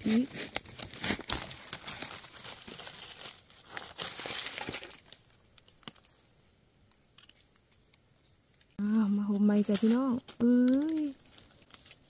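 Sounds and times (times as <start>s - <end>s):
dry leaves and twigs rustling: 0.0s - 12.0s.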